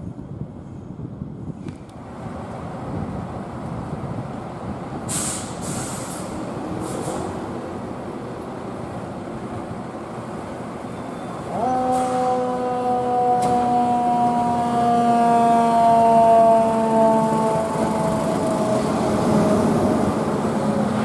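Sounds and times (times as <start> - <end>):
fire engine running: 0.4 - 21.0
short air hisses: 5.1 - 7.4
siren rising and falling: 11.5 - 19.9.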